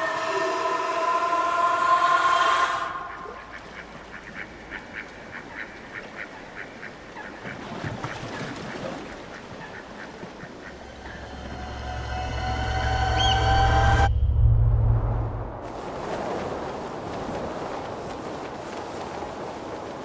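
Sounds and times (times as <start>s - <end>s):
brief low rumble: 11.1s - 16.4s.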